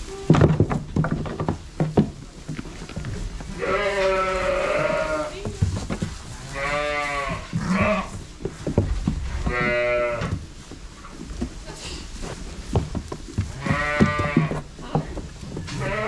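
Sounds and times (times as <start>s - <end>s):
sheep bleating: 3.6s - 5.4s, 6.4s - 8.1s, 9.4s - 10.3s, 13.6s - 14.6s, 15.7s - 16.0s.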